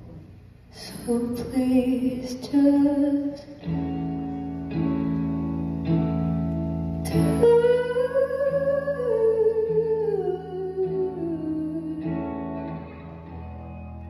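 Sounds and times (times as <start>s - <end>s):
electric guitar chords: 1.1s - 14.0s.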